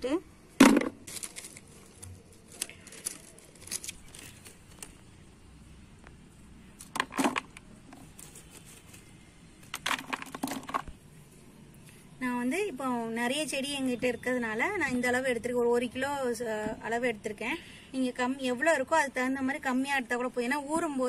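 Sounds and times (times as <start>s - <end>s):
chunks clattering into plastic bucket: 7.0s - 7.5s.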